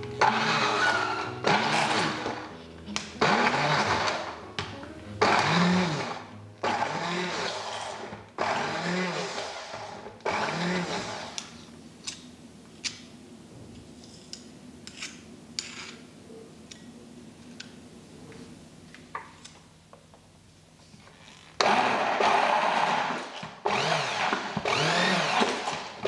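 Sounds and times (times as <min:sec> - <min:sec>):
stick blender whirring: 0:00.0 - 0:04.5, 0:05.2 - 0:11.5, 0:21.6 - 0:26.0.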